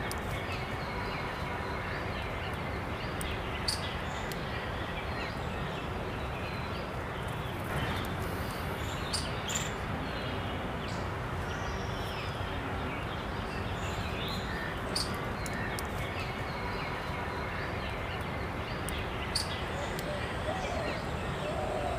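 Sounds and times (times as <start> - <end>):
outdoor background noise: 0.0 - 21.9.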